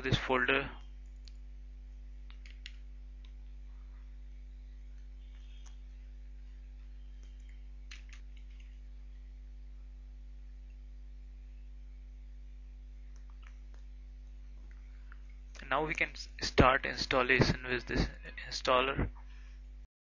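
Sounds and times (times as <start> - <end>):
electrical hum: 0.0 - 19.9
computer mouse clicks: 2.3 - 3.4, 7.2 - 8.8.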